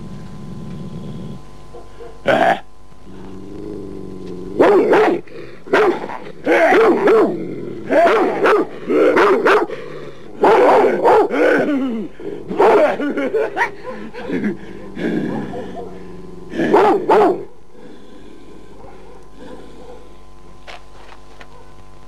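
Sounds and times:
dog barking: 0:01.7 - 0:02.3, 0:04.6 - 0:07.3, 0:07.9 - 0:09.7, 0:10.4 - 0:11.4, 0:12.6 - 0:14.4, 0:15.3 - 0:16.0, 0:16.6 - 0:17.6, 0:19.8 - 0:20.1.

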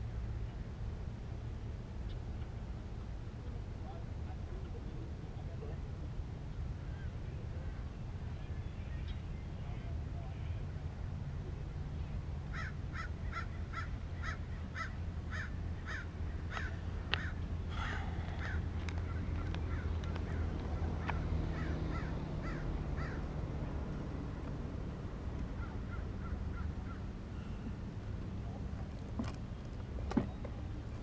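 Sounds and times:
bird harsh calls: 0:12.5 - 0:23.3.

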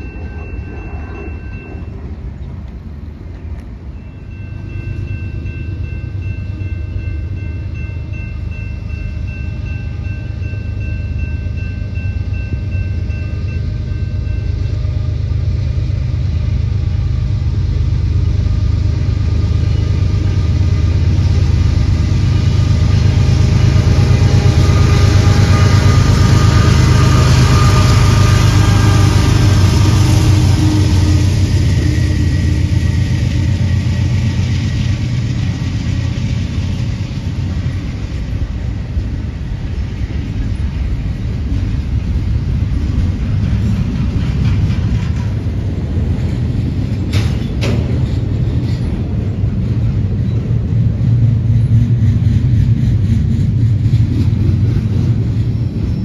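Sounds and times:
diesel locomotive engine drone: 0:00.0 - 0:56.0.

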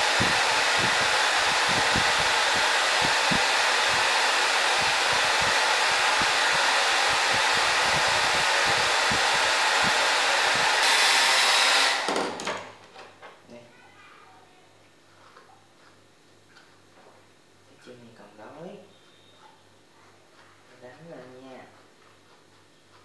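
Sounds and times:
hair dryer blowing: 0:00.0 - 0:12.4.

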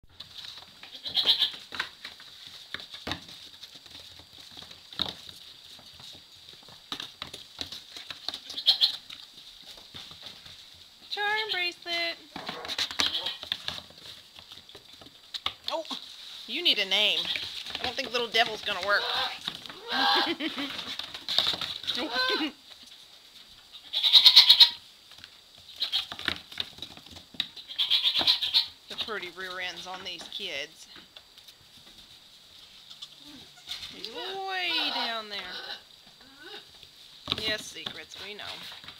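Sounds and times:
small hooves pattering on dirt floor: 0:00.0 - 0:38.9
goat kid bleating: 0:00.8 - 0:01.6, 0:08.4 - 0:09.0, 0:13.0 - 0:13.4, 0:19.0 - 0:20.4, 0:21.8 - 0:22.6, 0:23.7 - 0:24.8, 0:25.8 - 0:26.1, 0:27.6 - 0:28.8, 0:32.9 - 0:36.7.

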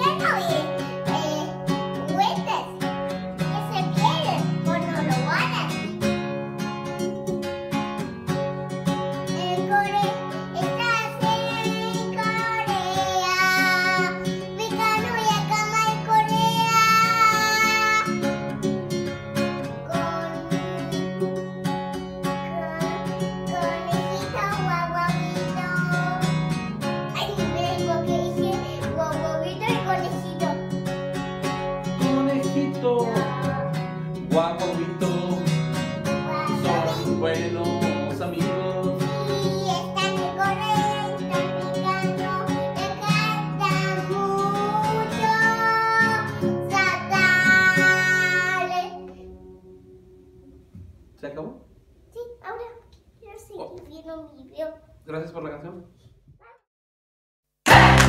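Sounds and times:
girl singing: 0:00.0 - 0:06.1, 0:09.2 - 0:18.3, 0:19.4 - 0:21.4, 0:22.1 - 0:30.9, 0:31.8 - 0:34.3, 0:34.9 - 0:49.3
acoustic guitar strumming: 0:00.0 - 0:51.0, 0:57.7 - 0:58.0.

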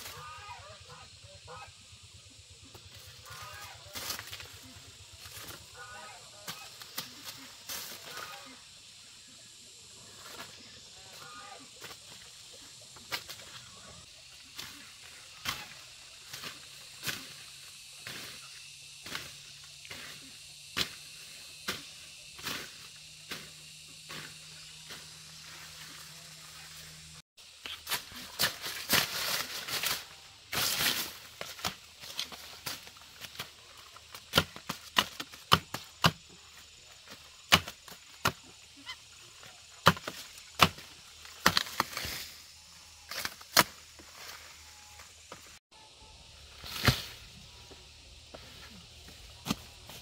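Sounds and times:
blade chopping sugarcane: 0:20.8 - 0:21.0, 0:34.1 - 0:36.4, 0:37.1 - 0:38.5, 0:39.8 - 0:42.3, 0:43.1 - 0:44.1.

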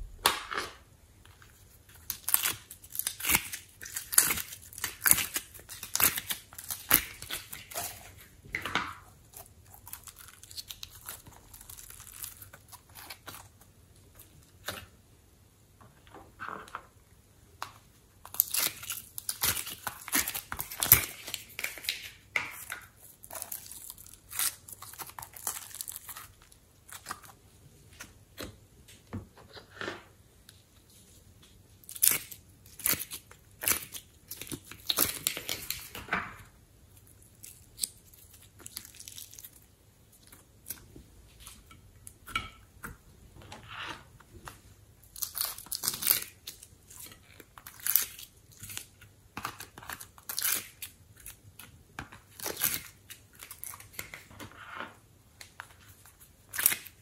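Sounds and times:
sticky slime peeling: 0:22.6 - 0:27.4.

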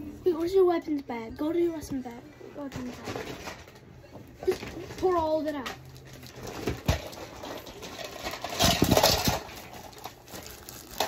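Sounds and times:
plastic toys clattering: 0:02.6 - 0:11.0.

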